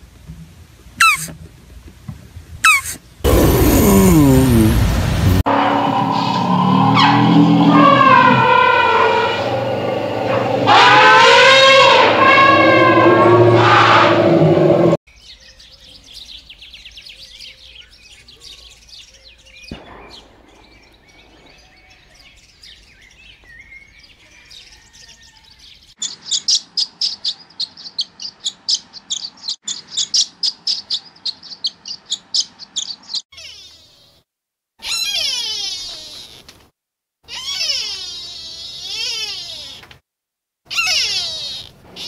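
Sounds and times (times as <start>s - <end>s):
loud animal call: 1.0s - 1.4s, 2.6s - 4.9s, 5.5s - 15.0s, 33.3s - 34.2s, 34.8s - 36.4s, 37.3s - 39.9s, 40.7s - 42.0s
songbirds chirping: 14.6s - 34.2s.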